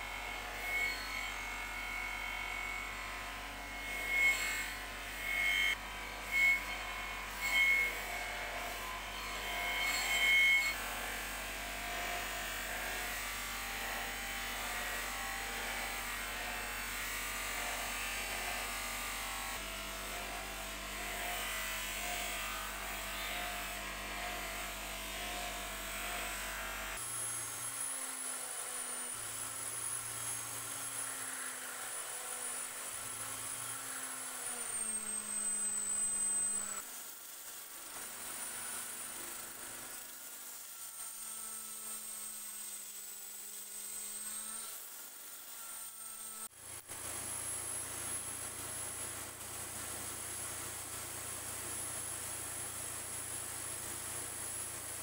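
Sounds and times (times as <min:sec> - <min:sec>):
bench grinder grinding steel: 0:00.0 - 0:55.0
electric drill whining: 0:25.7 - 0:36.9.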